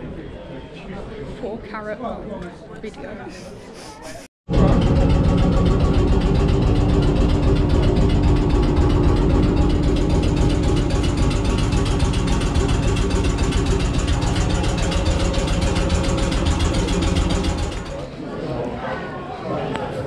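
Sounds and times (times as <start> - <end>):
fast regular rattle: 4.5 - 18.1
locomotive machinery hum: 4.5 - 18.1.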